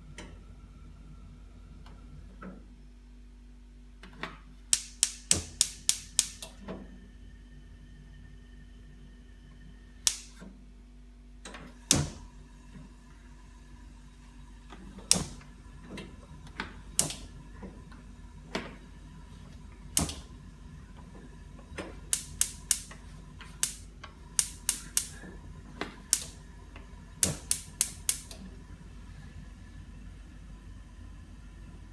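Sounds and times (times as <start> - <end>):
faint steady hum: 0.0 - 31.9
gas range igniter clicking: 4.7 - 6.5, 10.0 - 10.4, 15.0 - 15.5, 16.6 - 17.3, 19.9 - 20.4, 21.7 - 26.4, 27.2 - 28.5.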